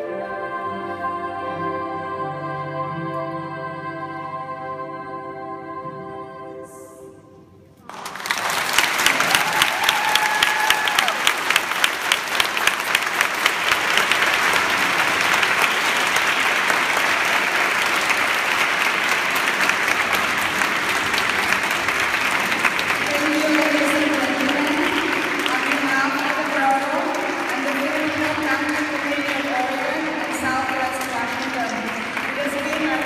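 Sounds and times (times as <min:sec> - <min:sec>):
audience applause: 0:07.8 - 0:33.0.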